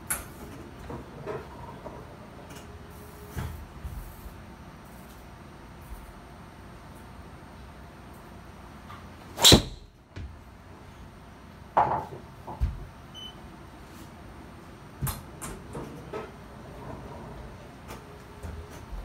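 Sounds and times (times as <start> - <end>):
golf club striking ball: 9.4 - 9.9.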